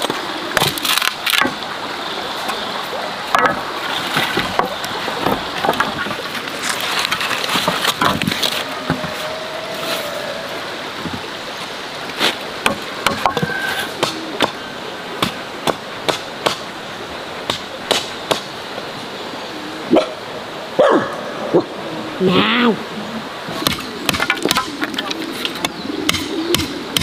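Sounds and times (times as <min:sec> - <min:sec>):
wooden knocks: 0:07.5 - 0:09.3, 0:12.6 - 0:14.6, 0:23.6 - 0:25.2.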